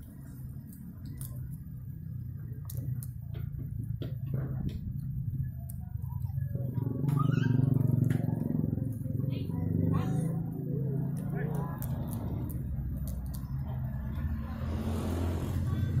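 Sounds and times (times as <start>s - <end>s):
low mechanical hum: 0.0s - 16.0s
sharp clicks: 11.1s - 13.8s.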